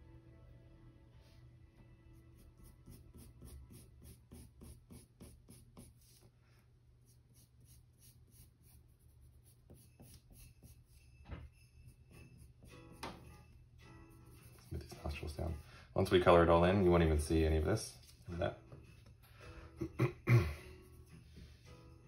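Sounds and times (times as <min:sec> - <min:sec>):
pencil scratching on paper: 0:02.2 - 0:06.3, 0:07.0 - 0:15.7.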